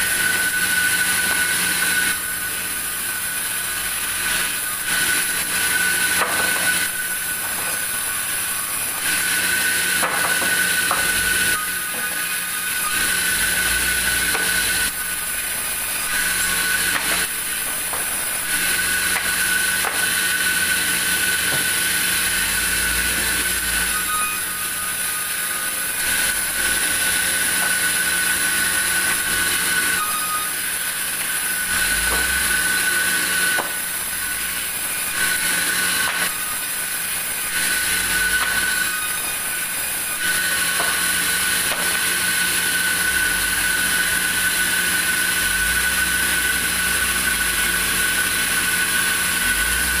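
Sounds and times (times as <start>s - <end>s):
band saw ripping wood: 4.0s - 24.4s, 25.2s - 44.4s
knocks of boards being handled: 6.2s - 6.8s, 9.9s - 11.2s, 14.3s - 14.7s, 16.9s - 18.2s, 33.5s - 33.8s, 40.6s - 42.0s.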